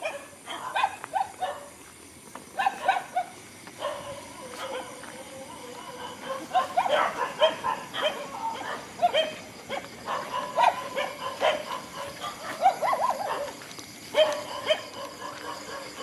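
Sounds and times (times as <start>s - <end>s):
dogs yipping and yelping: 0.0s - 1.7s, 2.5s - 16.0s.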